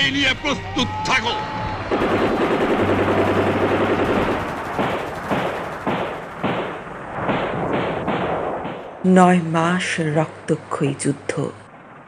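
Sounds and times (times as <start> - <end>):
automatic gunfire burst: 1.9 - 8.9
rifle shots: 1.9 - 9.0.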